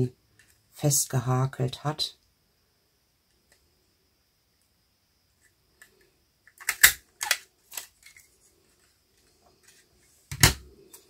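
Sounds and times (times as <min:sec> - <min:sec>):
plastic craft punch clacking: 0:06.5 - 0:07.4.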